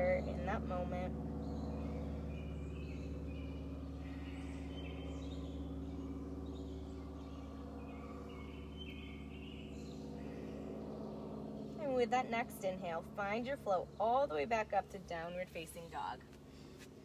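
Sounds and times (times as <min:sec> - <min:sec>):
small birds chirping: 0:00.0 - 0:11.8
steady low hum: 0:00.0 - 0:17.0.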